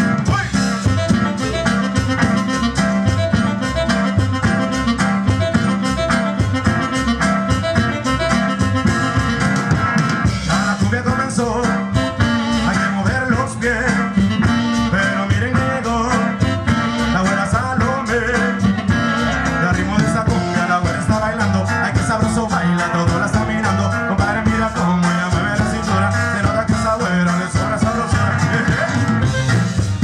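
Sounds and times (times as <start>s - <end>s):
drum kit beat: 0.0s - 30.0s
live band playing: 0.0s - 30.0s
person singing: 10.4s - 29.1s.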